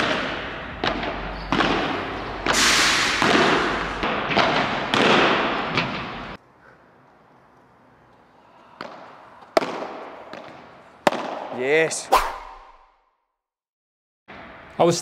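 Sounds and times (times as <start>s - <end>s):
padel balls struck with rackets: 0.0s - 6.4s, 8.7s - 12.8s.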